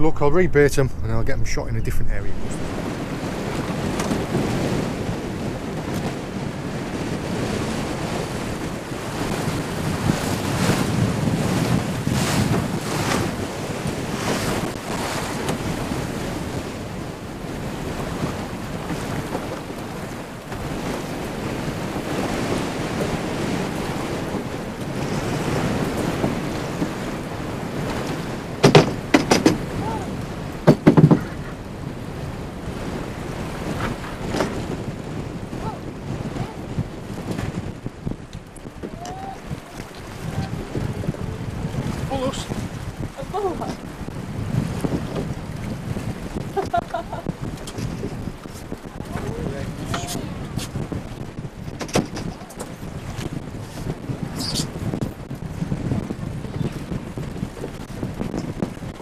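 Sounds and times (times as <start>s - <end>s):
wind buffeting microphone: 0.0s - 59.0s
water slapping boat hull: 2.4s - 59.0s
sharp loud knocks: 28.6s - 29.6s, 30.6s - 31.4s.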